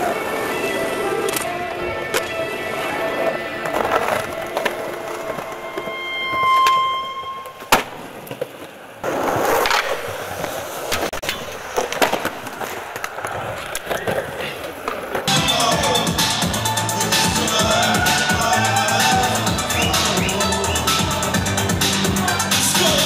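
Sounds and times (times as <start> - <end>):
skateboard clacking on ground: 0.0 - 15.5
skateboard wheels rolling on concrete: 0.0 - 23.0.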